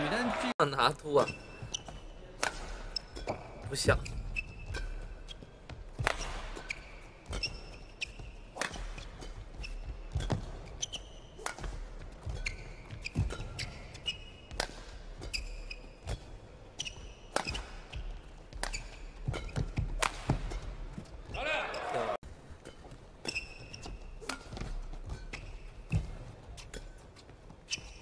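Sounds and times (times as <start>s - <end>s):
shoes squeaking on court: 1.0s - 28.0s
racket striking shuttlecock: 2.4s - 3.6s, 4.3s - 21.1s, 22.7s - 27.1s.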